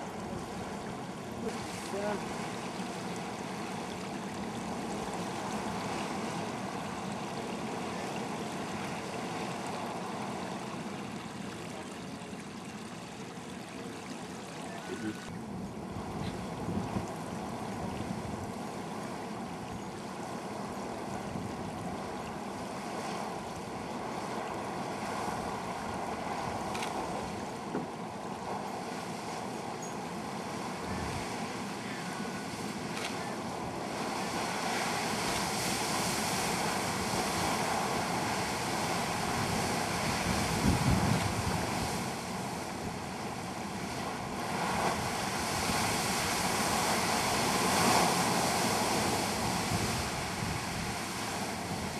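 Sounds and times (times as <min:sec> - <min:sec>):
geyser water rushing and splashing: 0:00.0 - 0:15.3, 0:15.9 - 0:51.9
wind buffeting microphone: 0:15.3 - 0:19.6, 0:30.5 - 0:31.5, 0:33.4 - 0:51.9.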